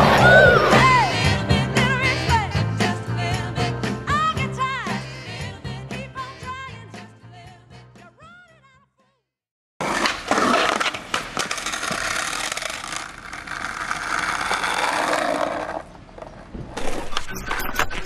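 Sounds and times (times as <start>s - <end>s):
skateboard wheels rolling: 0.0s - 1.1s, 9.8s - 17.3s
skateboard grinding on concrete ledge: 9.8s - 17.1s.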